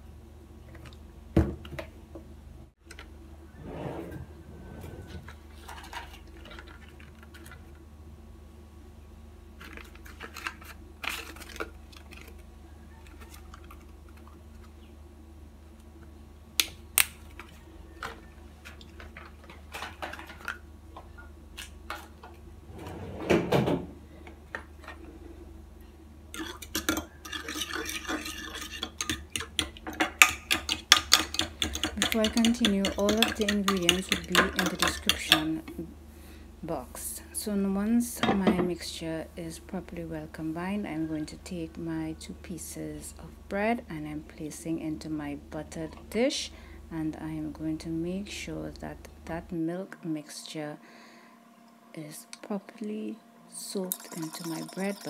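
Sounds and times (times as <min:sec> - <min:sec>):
utensil scraping: 0:03.5 - 0:05.4, 0:27.2 - 0:29.1
drawer opening and rummaging: 0:03.6 - 0:06.1, 0:22.7 - 0:23.9
dishes clinking: 0:53.9 - 0:55.0
utensil clinking against glass jug: 0:53.9 - 0:55.0.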